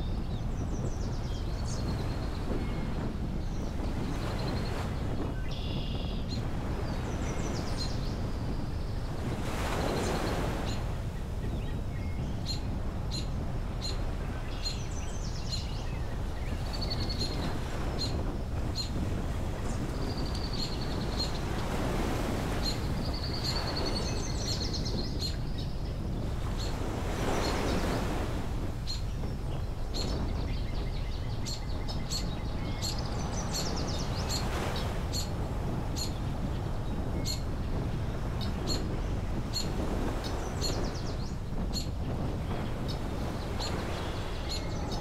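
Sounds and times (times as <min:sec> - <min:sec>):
car road and wind noise: 0:00.0 - 0:09.0
birds chirping and trilling: 0:11.4 - 0:19.0, 0:19.6 - 0:37.5, 0:42.6 - 0:45.0.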